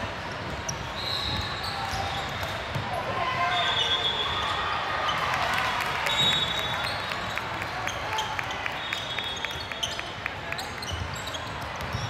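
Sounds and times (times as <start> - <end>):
basketball bouncing on court: 10.8 - 12.0.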